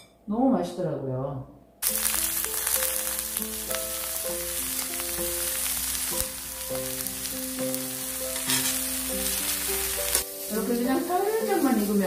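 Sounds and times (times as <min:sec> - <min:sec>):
slow background music: 0:01.8 - 0:12.0
small crackles: 0:01.8 - 0:12.0
vegetables sizzling on grill pan: 0:01.8 - 0:12.0.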